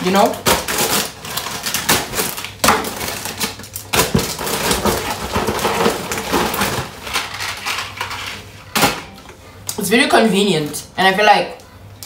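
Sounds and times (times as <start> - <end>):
plastic wrappers crinkling: 0.0 - 8.8.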